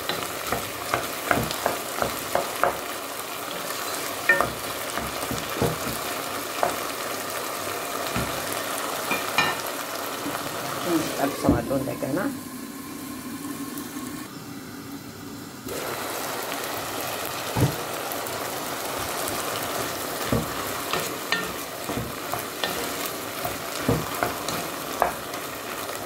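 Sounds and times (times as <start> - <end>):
chicken sizzling in a pot: 0.0 - 26.0
wooden spoon knocking pot: 0.1 - 2.9, 4.3 - 6.9, 8.1 - 9.6, 20.2 - 25.3.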